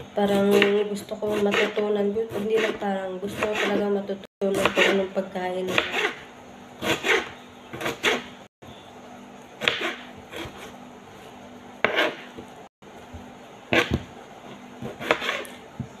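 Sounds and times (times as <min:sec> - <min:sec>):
knife cutting on board: 0:01.3 - 0:02.8, 0:03.4 - 0:03.8, 0:04.6 - 0:05.0, 0:05.7 - 0:06.2, 0:06.8 - 0:08.3, 0:09.6 - 0:10.8, 0:11.8 - 0:12.5, 0:13.7 - 0:14.1, 0:14.8 - 0:15.6.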